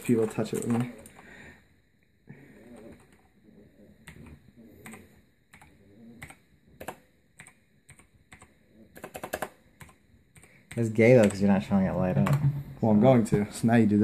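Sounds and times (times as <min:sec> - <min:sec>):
mechanical keyboard clicks: 0:05.6 - 0:11.4.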